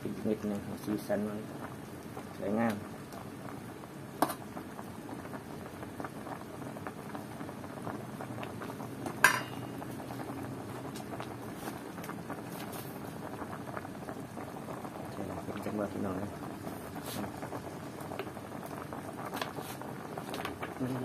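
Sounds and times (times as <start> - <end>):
broth bubbling in pot: 0.0 - 21.0
ladle clinking against metal pot: 9.2 - 9.6.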